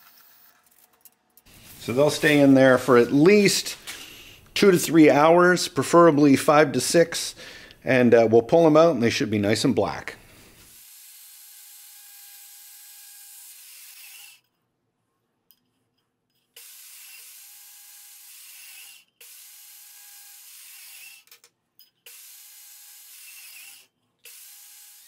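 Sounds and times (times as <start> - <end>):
bandsaw cutting: 10.6 - 14.4, 16.6 - 21.4, 22.1 - 25.0.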